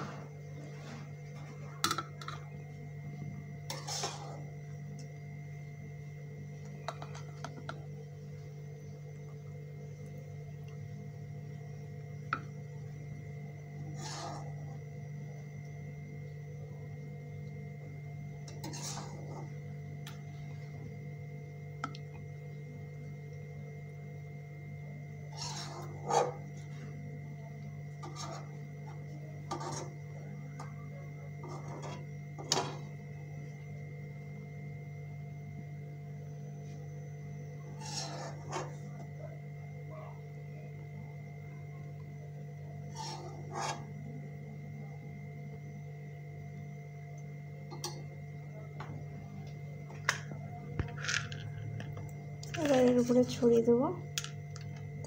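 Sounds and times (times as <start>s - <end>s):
scraping and rubbing: 3.7s - 4.5s, 18.6s - 19.5s, 25.3s - 26.5s, 28.0s - 28.6s, 29.5s - 30.0s, 37.8s - 38.8s, 42.9s - 43.9s.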